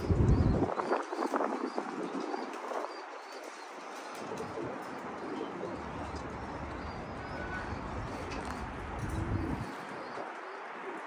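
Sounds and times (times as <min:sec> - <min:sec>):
pigeons cooing: 0:00.0 - 0:11.0.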